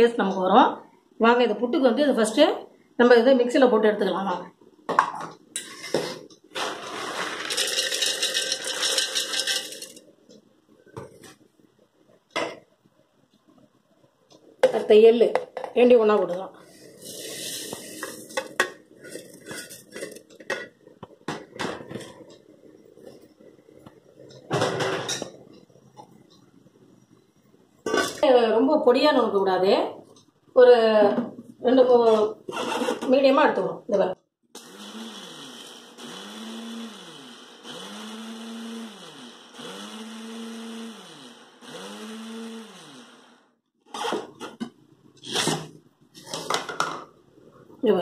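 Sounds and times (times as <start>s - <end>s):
mixer grinder motor pulsing: 34.6s - 44.2s.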